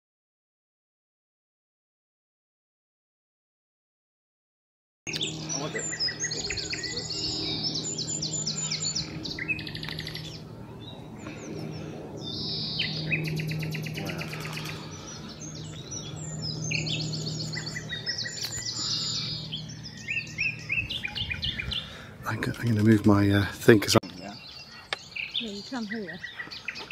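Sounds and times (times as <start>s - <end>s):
low steady hum: 5.1s - 24.3s
nightingale singing: 12.3s - 22.4s.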